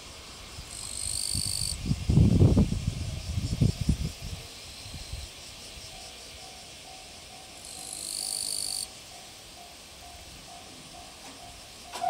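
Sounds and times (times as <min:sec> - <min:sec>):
insects hissing: 0:00.0 - 0:12.0
high insect buzz: 0:00.1 - 0:12.0
level-crossing alarm ringing: 0:06.0 - 0:12.0.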